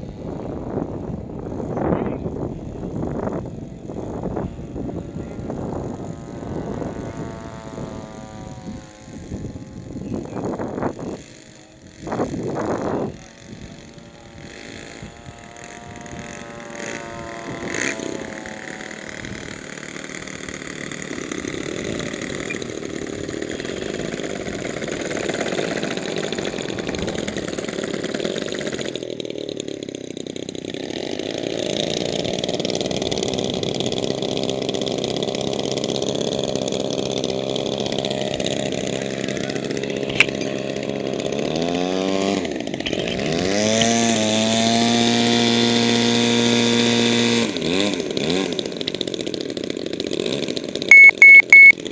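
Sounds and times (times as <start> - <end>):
model aircraft engines running: 0.0 - 51.9.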